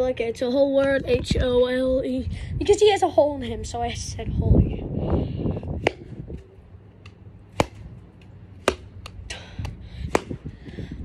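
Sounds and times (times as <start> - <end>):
sharp whacks: 8.6 - 9.2, 10.1 - 10.4.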